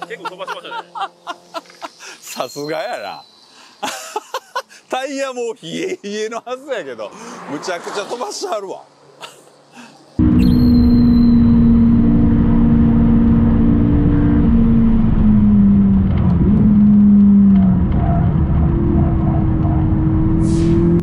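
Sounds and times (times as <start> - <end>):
road noise: 5.8 - 21.0
car engine running hard: 10.2 - 21.0.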